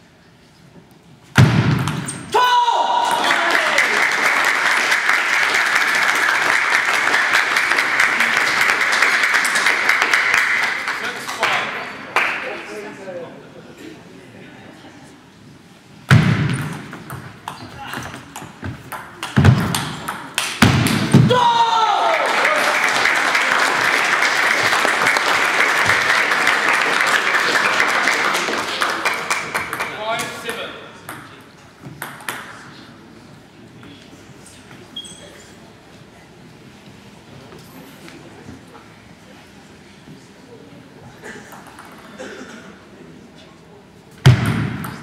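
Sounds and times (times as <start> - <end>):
crowd applauding: 3.0 - 12.5, 21.8 - 30.2.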